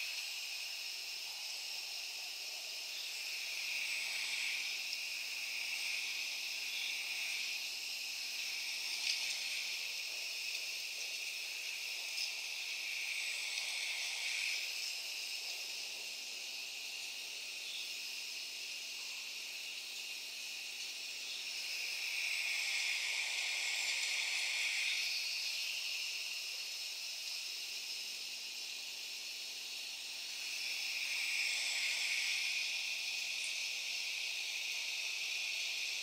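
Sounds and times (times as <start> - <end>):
steady high hiss: 0.0 - 36.0.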